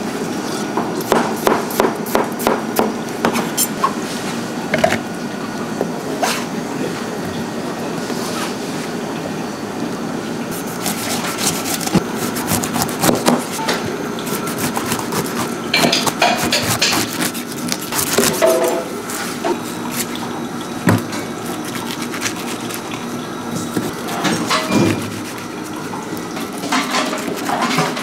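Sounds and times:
steady background hum: 0:00.0 - 0:28.0
dishes knocking and clinking: 0:04.7 - 0:05.0, 0:15.7 - 0:17.1, 0:24.2 - 0:25.1.

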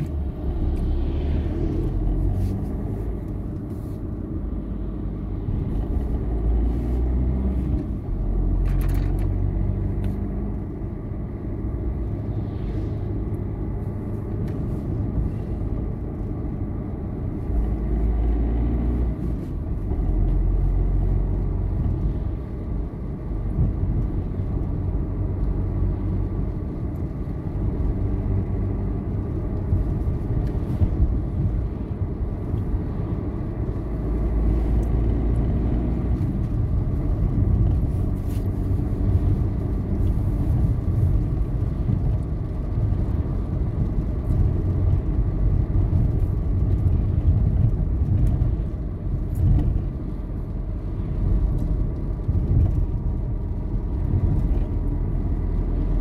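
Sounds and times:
car engine and tyre rumble: 0:00.0 - 0:56.0.

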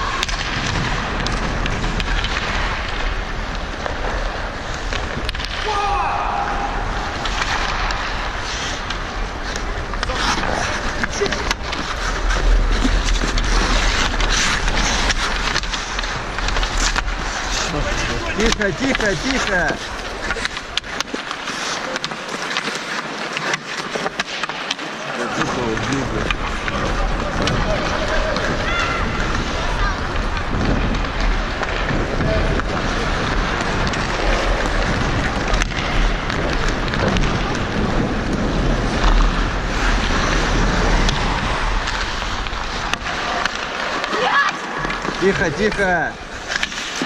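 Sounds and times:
hockey sticks and puck clacking: 0:00.0 - 0:47.0
skate blades scraping ice: 0:00.0 - 0:47.0
skates hissing on ice: 0:07.0 - 0:23.3
wind rumbling on microphone: 0:26.4 - 0:42.8.

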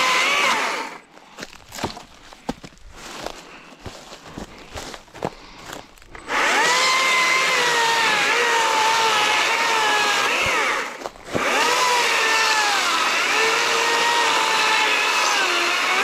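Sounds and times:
electric chainsaw cutting log: 0:00.0 - 0:01.0, 0:06.1 - 0:16.0.

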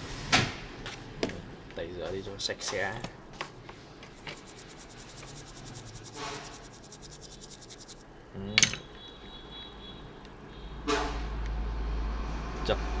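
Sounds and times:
stiff brush scrubbing circuit board: 0:04.1 - 0:08.0
tools clattering on bench: 0:08.6 - 0:08.9.

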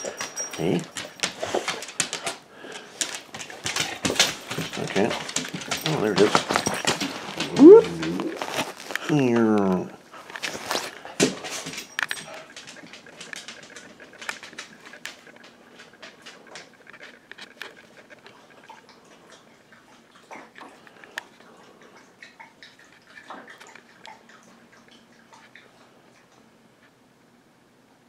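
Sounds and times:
dog claws tapping on hard floor: 0:00.0 - 0:18.8.

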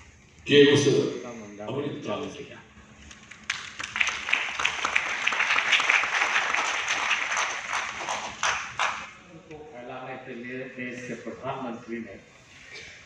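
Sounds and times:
audience applauding: 0:03.1 - 0:09.2.

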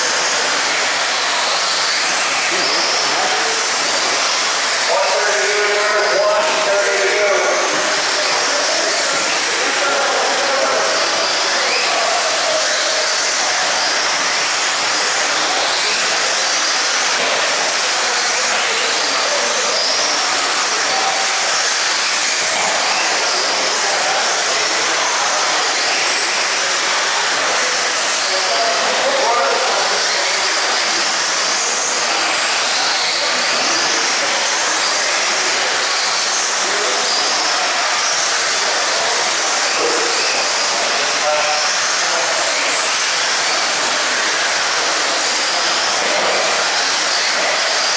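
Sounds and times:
electric motors whining: 0:00.0 - 0:47.9
rc cars hissing: 0:00.0 - 0:47.9.

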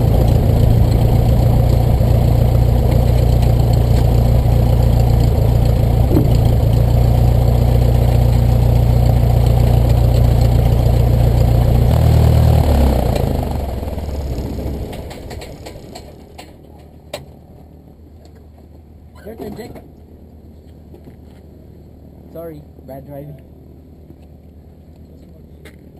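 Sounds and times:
propeller plane engine idling: 0:00.0 - 0:17.8.

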